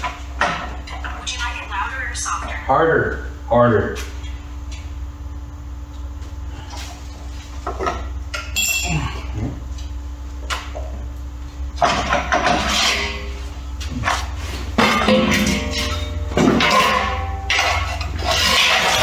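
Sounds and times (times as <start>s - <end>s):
low hum: 0.0s - 19.0s
metallic ring: 8.4s - 9.2s, 14.8s - 19.0s
sheet metal clanks and scrapes: 11.8s - 13.4s, 14.8s - 19.0s.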